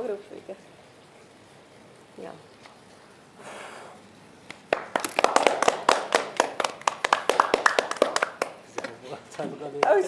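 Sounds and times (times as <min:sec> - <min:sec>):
people clapping: 0:04.5 - 0:10.0.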